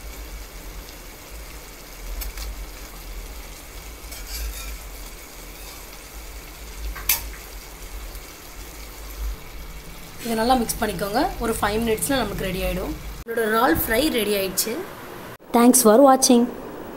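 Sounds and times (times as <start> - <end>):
faint sizzling: 0.0 - 16.9
metal spatula stirring in pan: 4.0 - 6.2.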